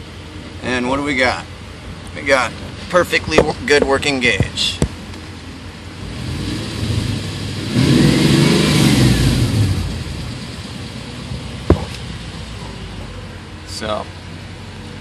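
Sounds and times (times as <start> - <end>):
car engine idling and revving: 4.0 - 15.0.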